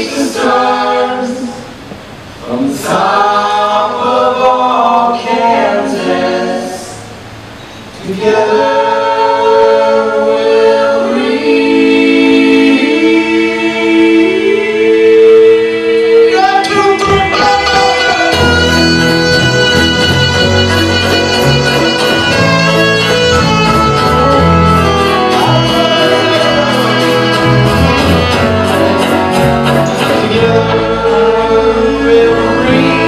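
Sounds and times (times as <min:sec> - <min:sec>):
voices singing close harmony: 0:00.0 - 0:07.3, 0:08.0 - 0:33.0
upright bass: 0:16.9 - 0:33.0.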